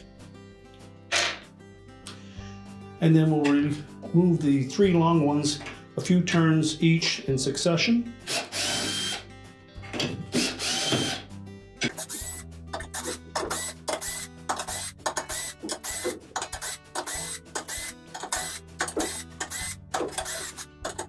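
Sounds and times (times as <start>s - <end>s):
background music: 0.0s - 21.0s
cordless drill running: 8.3s - 9.2s, 10.3s - 11.2s, 12.0s - 12.4s, 13.0s - 20.6s.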